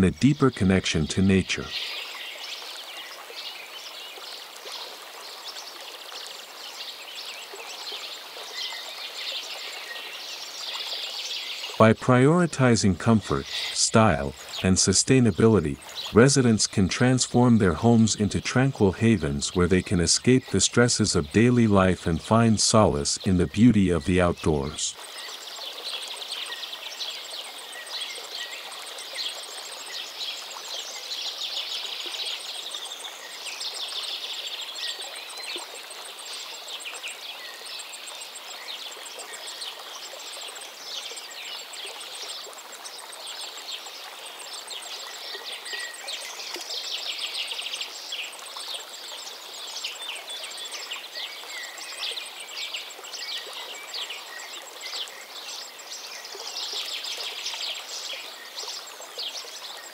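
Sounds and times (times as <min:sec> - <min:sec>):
running water rushing: 0:00.0 - 0:37.2.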